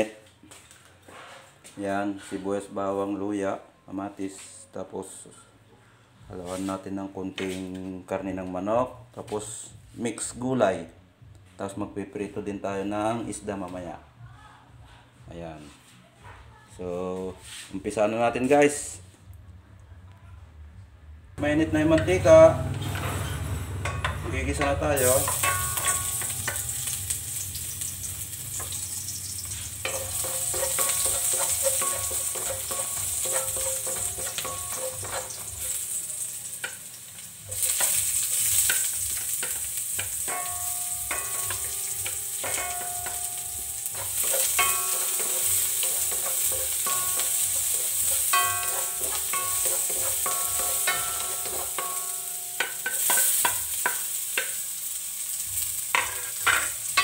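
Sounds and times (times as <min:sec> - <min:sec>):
wooden spatula scraping wok: 0:17.4 - 0:17.8, 0:28.5 - 0:36.8, 0:37.5 - 0:54.5
food sizzling in oil: 0:22.8 - 0:57.0.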